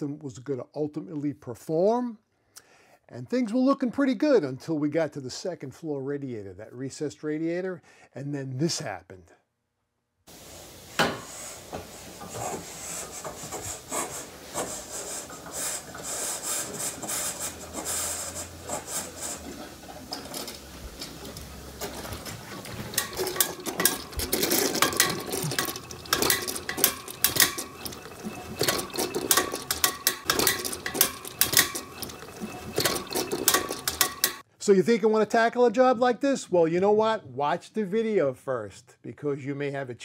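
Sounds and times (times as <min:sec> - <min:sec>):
radiator air vent hissing and spitting: 0:10.3 - 0:34.4.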